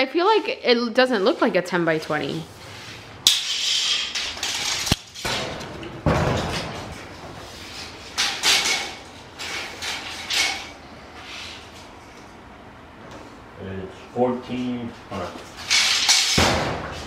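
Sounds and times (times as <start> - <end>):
tape measure rattling and scraping: 3.2 - 5.3.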